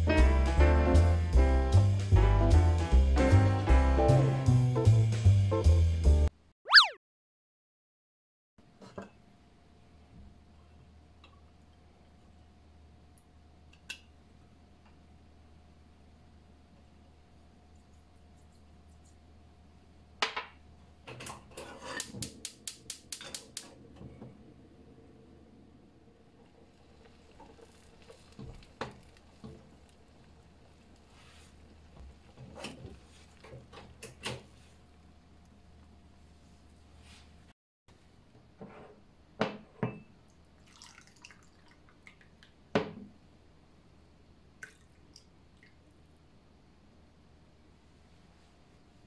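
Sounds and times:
milk trickling into a mug: 26.6s - 32.4s, 40.6s - 42.5s, 44.6s - 45.8s.

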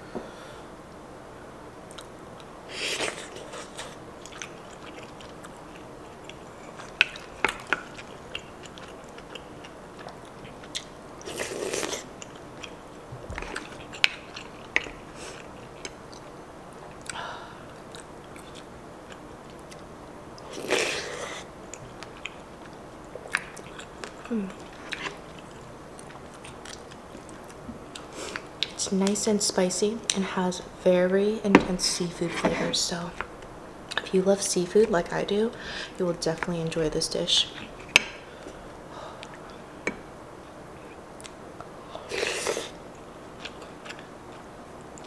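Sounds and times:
chewing and biting food: 1.9s - 12.8s, 13.4s - 28.7s, 43.4s - 45.0s.

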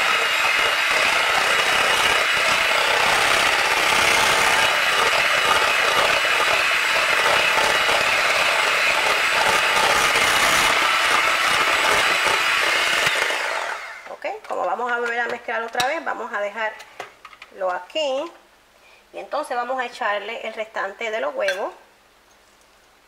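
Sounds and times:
electric hand mixer running: 0.0s - 14.1s.

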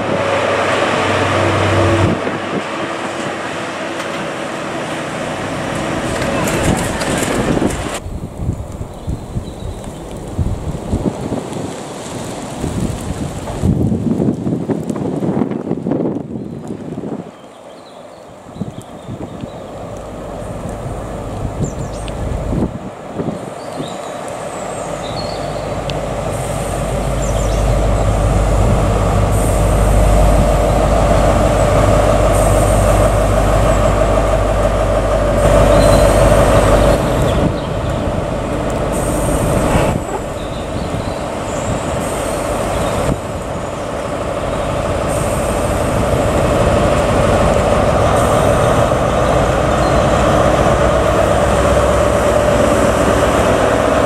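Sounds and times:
diesel train engine running: 0.0s - 8.2s, 19.5s - 23.6s, 24.2s - 54.0s
train rumbling on rails: 0.0s - 54.0s.

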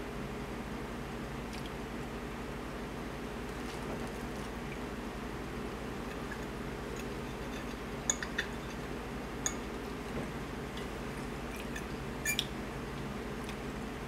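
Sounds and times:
fork clinking against plate: 7.3s - 8.8s.

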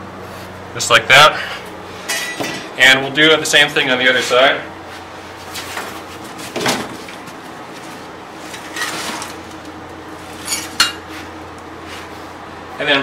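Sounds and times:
objects knocking and rustling: 5.6s - 7.4s.

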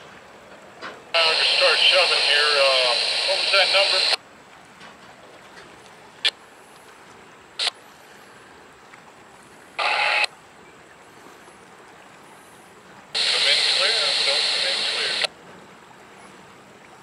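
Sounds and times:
radio static bursts: 1.2s - 4.2s, 9.8s - 10.3s, 13.2s - 15.3s
faint steady hiss: 1.2s - 17.0s.

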